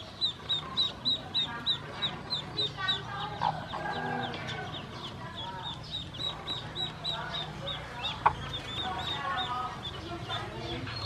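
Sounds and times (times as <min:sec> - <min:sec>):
ducklings peeping: 0:00.0 - 0:11.0.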